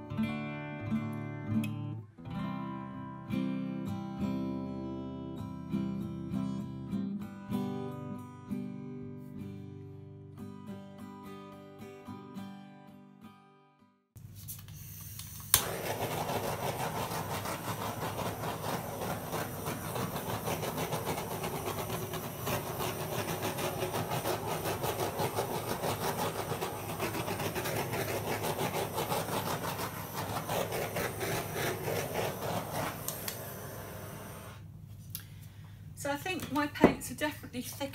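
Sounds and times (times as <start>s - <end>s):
gas hiss: 14.7s - 24.6s, 29.7s - 34.7s
blowtorch igniter click: 15.0s - 15.9s, 32.8s - 33.6s
blowtorch flame rushing: 15.0s - 34.7s.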